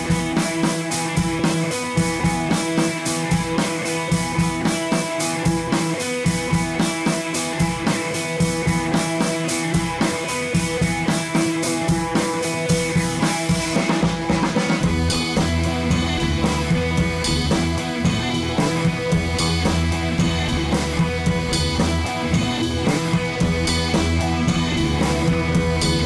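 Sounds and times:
rock music: 0.0s - 26.0s.

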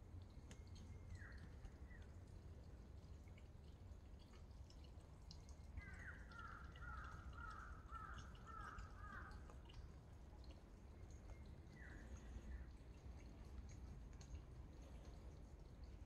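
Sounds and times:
bird calling faintly: 5.8s - 9.9s.

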